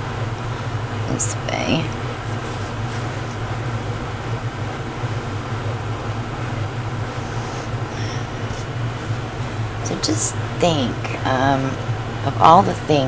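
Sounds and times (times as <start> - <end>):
room ventilation humming: 0.0 - 13.0.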